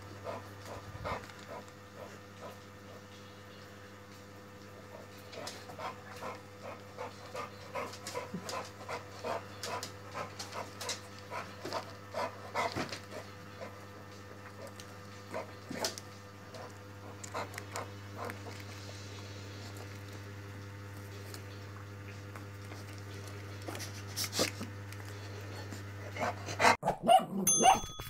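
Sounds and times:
dog panting: 0:00.2 - 0:03.0, 0:04.9 - 0:13.8, 0:16.6 - 0:18.6.

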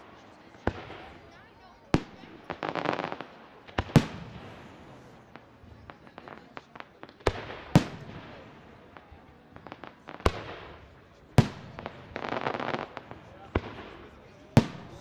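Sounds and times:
fireworks pops and crackles: 0:00.0 - 0:15.0
fireworks booming: 0:01.9 - 0:15.0.

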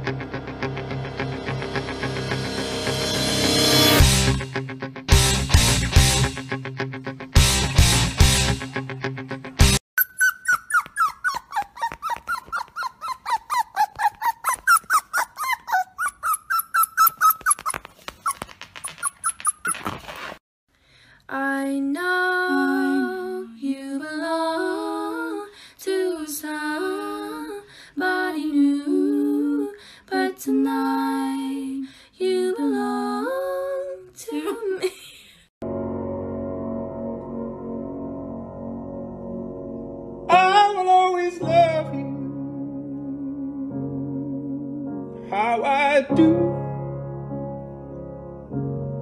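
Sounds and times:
puppy whimpering and yelping: 0:10.0 - 0:20.2.

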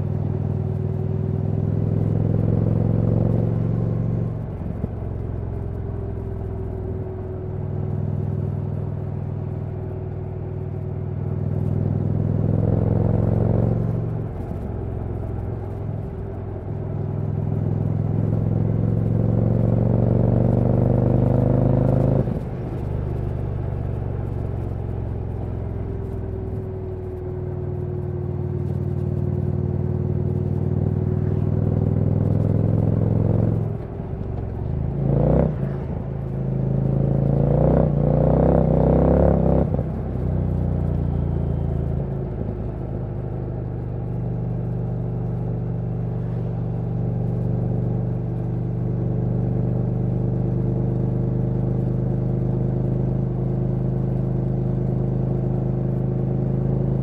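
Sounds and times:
motorcycle engine revving: 0:34.9 - 0:42.0.

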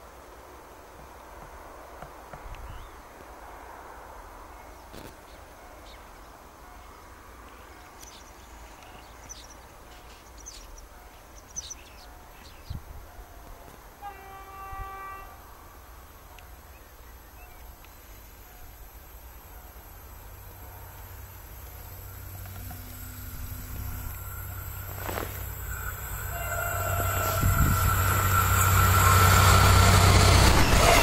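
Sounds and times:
railbus approaching rumble: 0:00.0 - 0:31.0
train horn blast: 0:13.1 - 0:15.6, 0:22.5 - 0:31.0.

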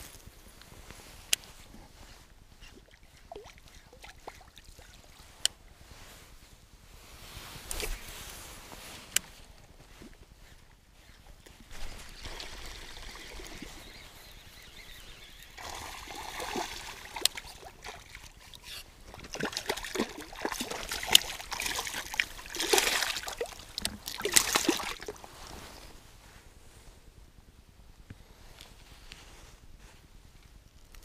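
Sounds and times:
fish splashing at water surface: 0:19.1 - 0:25.2.

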